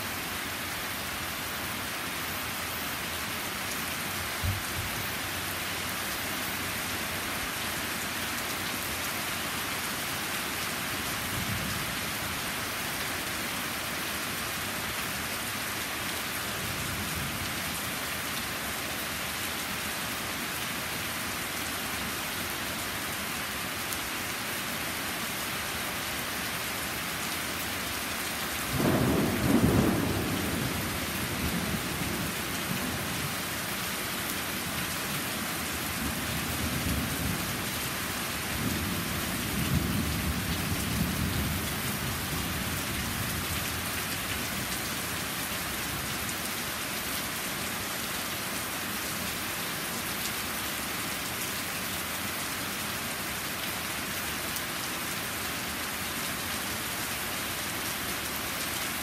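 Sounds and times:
rain falling on patio and trees: 0:00.0 - 0:59.0
thunder rumbling: 0:28.7 - 0:33.0.

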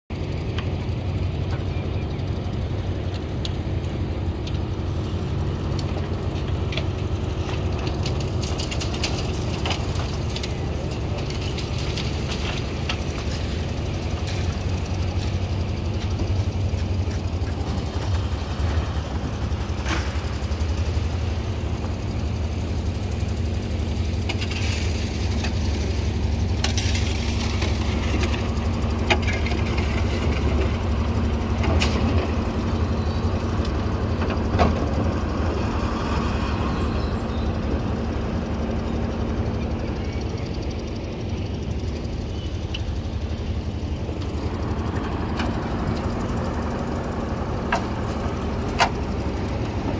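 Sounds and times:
machine running with low rumble: 0:00.1 - 0:49.9.

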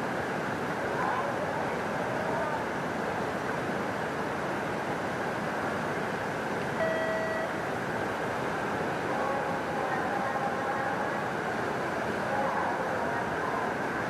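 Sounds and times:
whitewater rushing: 0:00.0 - 0:14.0
short electronic beep: 0:06.8 - 0:07.6.

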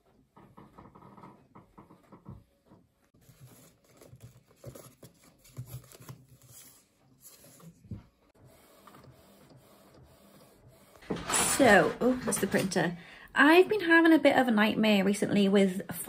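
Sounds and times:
papery rustling of cards: 0:03.2 - 0:08.0.

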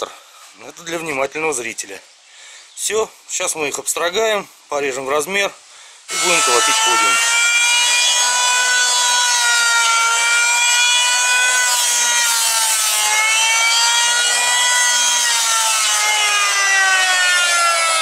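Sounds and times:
planer cutter hiss: 0:06.1 - 0:08.4
electric planer motor whine: 0:06.1 - 0:18.0.

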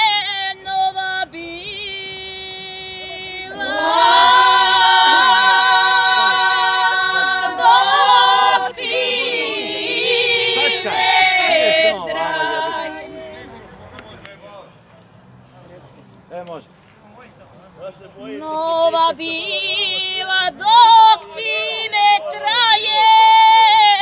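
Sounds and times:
women singing unaccompanied: 0:00.0 - 0:13.6, 0:18.4 - 0:24.0.

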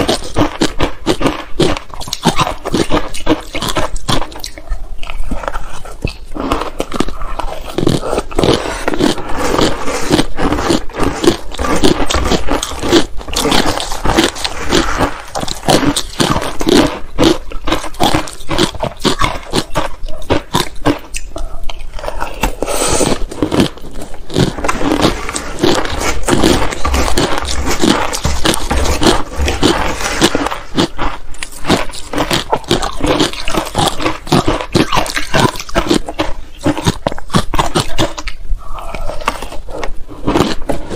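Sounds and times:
crunching and chewing ice: 0:00.0 - 0:40.9.

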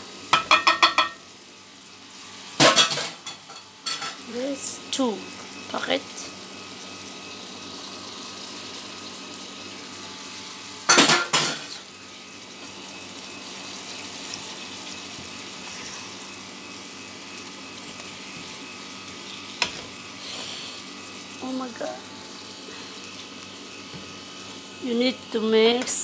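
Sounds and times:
food sizzling in a frying pan: 0:00.0 - 0:26.0
utensil clattering against pan: 0:00.3 - 0:01.2.

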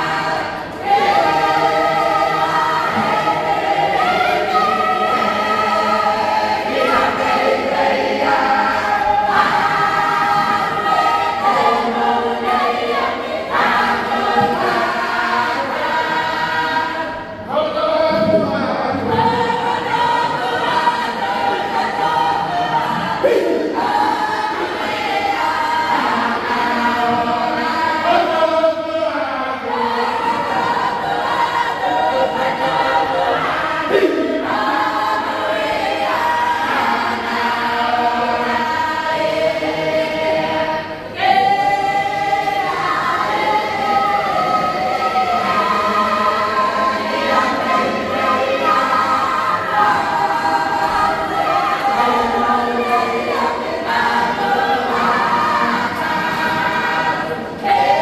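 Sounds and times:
choir singing a hymn: 0:00.0 - 0:58.0.

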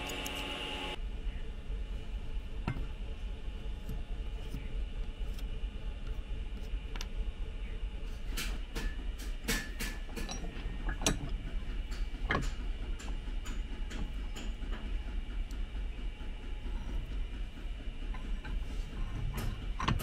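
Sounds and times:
steady low hum: 0:00.0 - 0:20.0
metal clinks and knocks: 0:09.6 - 0:11.3.

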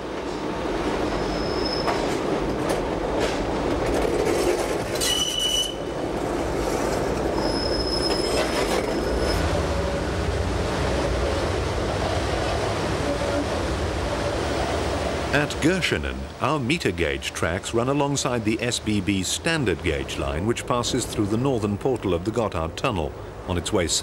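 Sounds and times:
train rumbling: 0:00.0 - 0:24.0
high-pitched wheel squeals: 0:01.1 - 0:02.1, 0:05.0 - 0:05.9, 0:07.3 - 0:09.6
wheels clicking over rail joints: 0:01.9 - 0:09.2.

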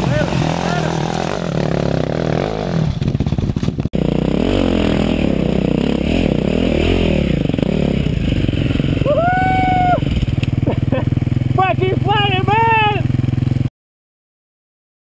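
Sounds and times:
motorcycle engine revving: 0:00.0 - 0:13.7.

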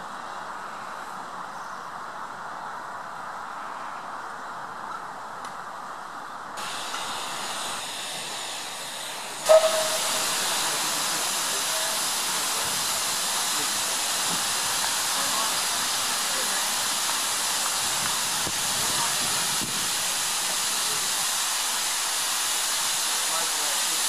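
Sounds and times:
faint outdoor ambience: 0:00.0 - 0:24.0
steam hissing from engine: 0:06.6 - 0:24.0.

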